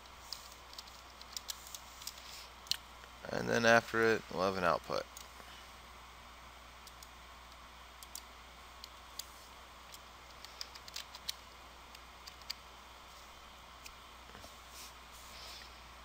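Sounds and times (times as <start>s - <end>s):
computer mouse clicks: 0.3s - 2.8s, 6.8s - 9.3s, 9.9s - 12.6s.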